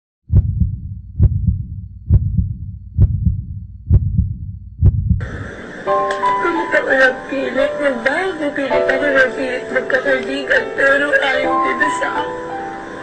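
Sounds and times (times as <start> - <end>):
heartbeat double thumps: 0.2 - 5.4.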